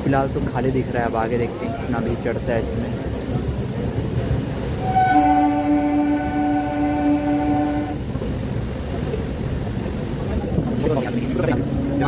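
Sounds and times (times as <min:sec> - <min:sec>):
train rumbling: 0:00.0 - 0:12.0
train horn blast: 0:04.8 - 0:08.0.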